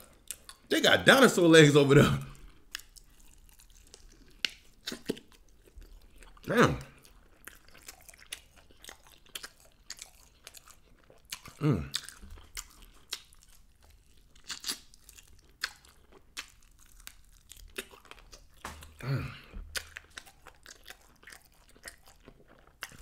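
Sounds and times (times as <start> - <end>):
chewing and crunching: 0.0 - 0.7, 2.3 - 23.0
wet mouth clicks: 4.0 - 5.3
person murmuring: 6.5 - 6.9, 11.6 - 11.9, 19.0 - 19.5.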